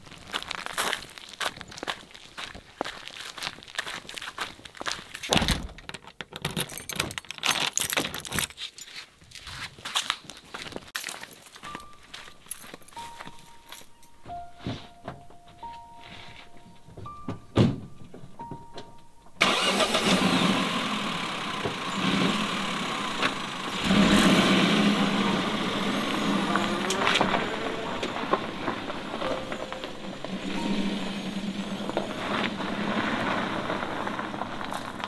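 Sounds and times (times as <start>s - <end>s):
van door shutting: 5.3s - 5.9s
van engine starting and running: 18.5s - 35.0s
van driving over dirt track: 19.4s - 35.0s.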